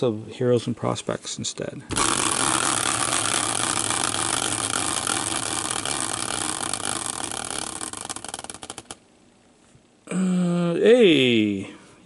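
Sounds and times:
prize wheel clicking: 0:01.9 - 0:09.0.

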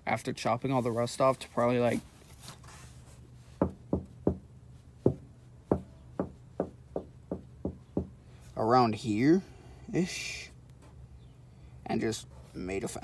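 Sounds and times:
knocking on car body panel: 0:03.6 - 0:04.4, 0:05.0 - 0:08.2.

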